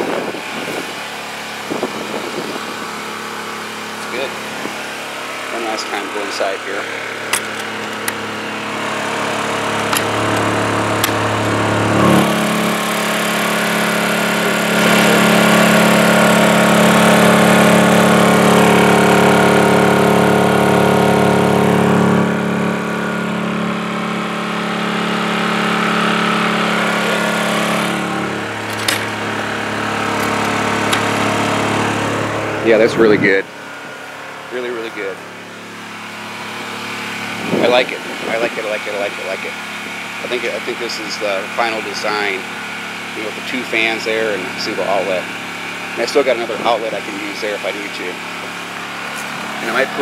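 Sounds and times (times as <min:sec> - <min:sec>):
generator engine running: 0:00.0 - 0:50.0
latches clicking: 0:07.3 - 0:08.2, 0:28.6 - 0:29.2.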